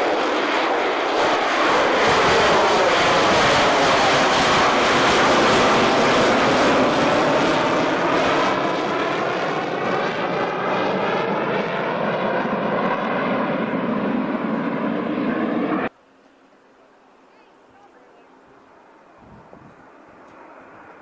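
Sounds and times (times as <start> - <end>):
jet aircraft flying away: 0.0 - 15.9, 18.7 - 21.0.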